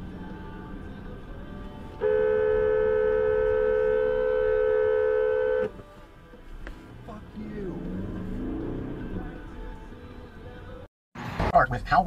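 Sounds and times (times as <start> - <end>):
car horn long steady blast: 1.9 - 5.8.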